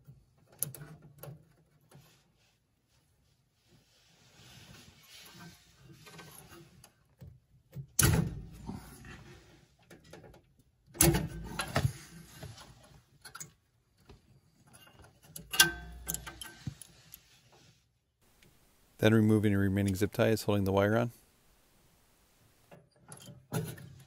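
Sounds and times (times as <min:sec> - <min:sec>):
wires scraping against sheet metal: 0:04.2 - 0:06.9.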